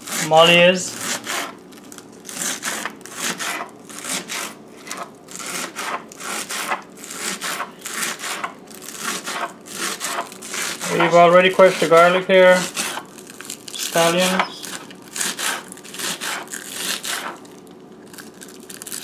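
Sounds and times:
knife chopping on wooden board: 1.0s - 1.6s, 2.4s - 13.1s, 14.2s - 17.4s.

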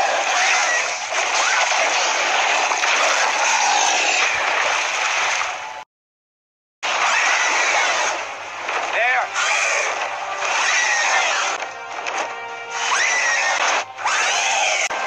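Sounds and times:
rushing surf and splashing water: 4.1s - 5.8s.

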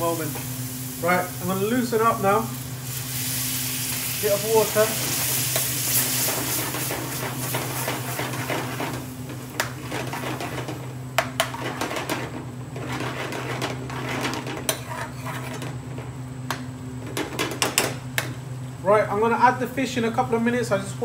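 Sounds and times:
sauce sizzling: 0.0s - 11.8s
steady low hum: 0.0s - 21.0s
metal spoon scraping frying pan: 11.4s - 15.7s.

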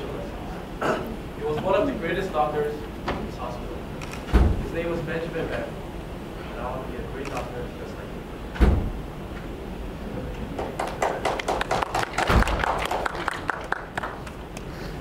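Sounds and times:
low thump: 4.3s - 4.7s, 8.6s - 9.0s.

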